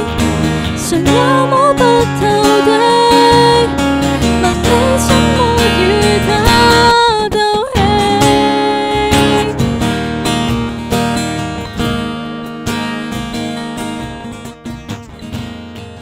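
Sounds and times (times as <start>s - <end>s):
woman singing pop ballad: 0.0s - 9.7s
strummed acoustic guitar: 0.0s - 16.0s.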